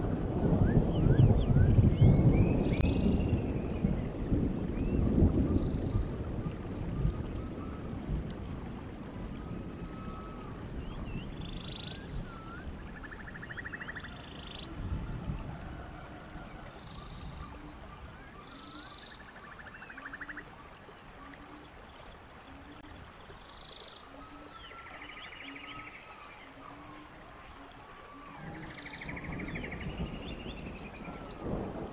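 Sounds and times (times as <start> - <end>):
whistled calls: 0.0 - 3.9, 9.3 - 20.5, 22.5 - 31.9.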